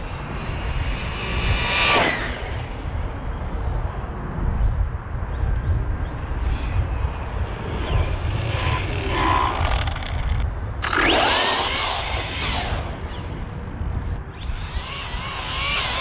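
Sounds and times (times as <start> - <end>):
electric motor whining: 7.4 - 13.4, 14.4 - 16.0.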